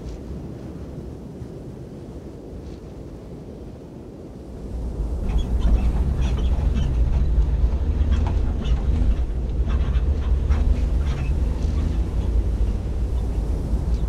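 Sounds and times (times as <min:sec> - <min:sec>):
vehicle engine rumbling under load: 0:04.7 - 0:14.0
cab rattles and knocks: 0:04.8 - 0:14.0.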